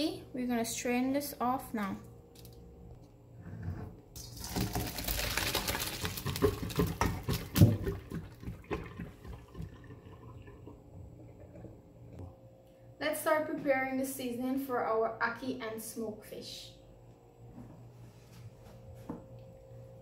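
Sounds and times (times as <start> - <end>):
water pouring into colander: 4.2 - 11.6.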